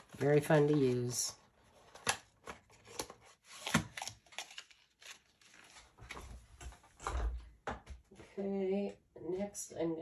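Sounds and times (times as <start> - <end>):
soft rustling of cards: 0.0 - 3.7.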